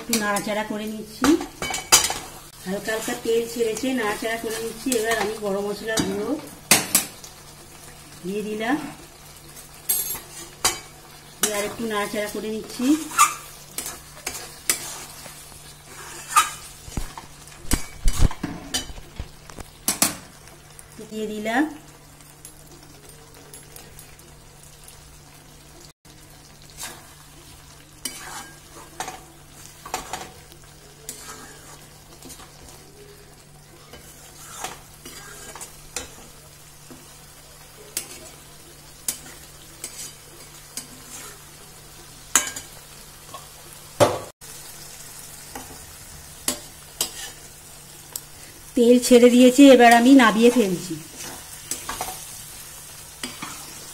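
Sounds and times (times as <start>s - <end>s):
faint sizzle: 0.0s - 53.9s
metal spatula scraping pan: 13.0s - 16.8s, 28.0s - 30.4s, 31.0s - 32.7s, 33.8s - 36.3s, 39.1s - 41.5s, 46.5s - 47.5s.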